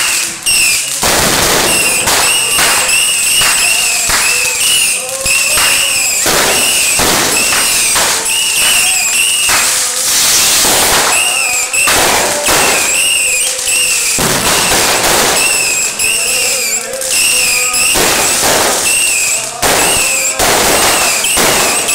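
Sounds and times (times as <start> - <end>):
firework whistles: 0.0 - 21.9
fireworks crackling and banging: 0.0 - 21.9.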